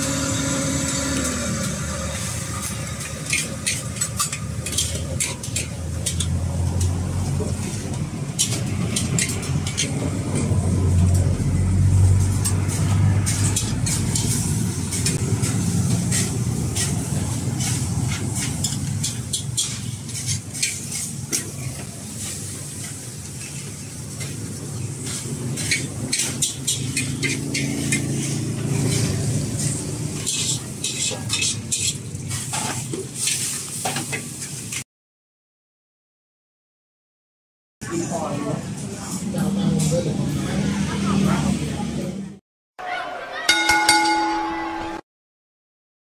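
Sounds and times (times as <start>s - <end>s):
gas burner rumbling: 0.0s - 34.8s
metal ladles clinking on wok: 3.0s - 6.4s, 25.6s - 28.0s, 30.2s - 32.1s.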